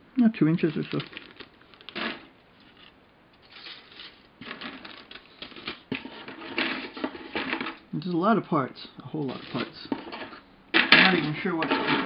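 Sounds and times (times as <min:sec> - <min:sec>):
plastic bag crinkling: 0:00.4 - 0:07.8, 0:09.2 - 0:10.4.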